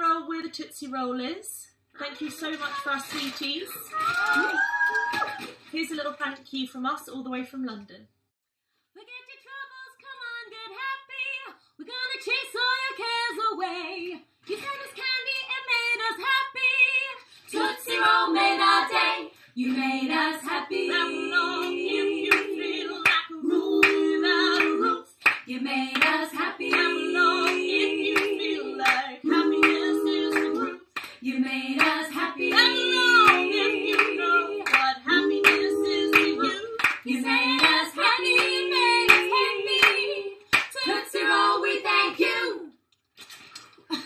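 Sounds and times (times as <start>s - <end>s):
women singing a cappella: 9.4s - 42.8s
hand claps: 23.8s - 24.0s, 24.6s - 29.0s, 29.6s - 31.2s, 31.8s - 40.7s.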